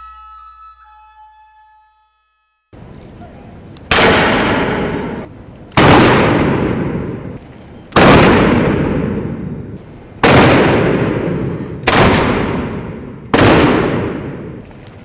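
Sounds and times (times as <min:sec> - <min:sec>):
gunshots echoing in a hall: 0:03.9 - 0:14.8.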